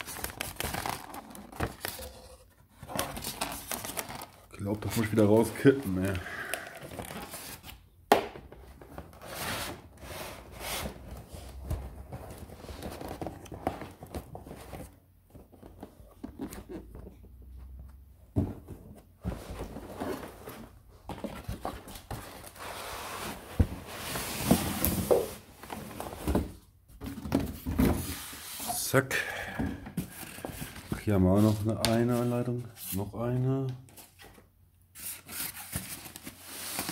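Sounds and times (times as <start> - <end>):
cardboard rustling and scraping: 8.6 - 28.9, 34.0 - 36.9.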